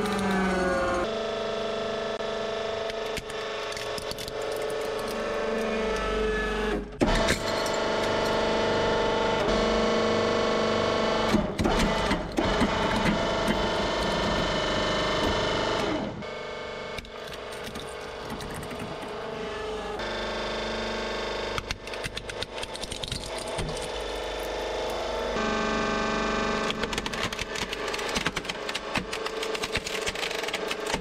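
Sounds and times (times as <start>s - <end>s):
objects cracking and snapping: 2.9s - 5.3s, 21.6s - 25.0s, 26.7s - 31.0s.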